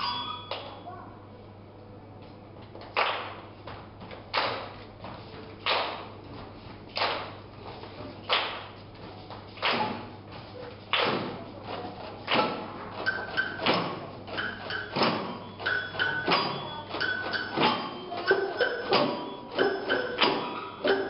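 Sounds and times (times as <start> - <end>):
loud percussion strikes echoing: 0.0 - 0.8, 12.3 - 21.0
high plucked notes: 14.4 - 21.0.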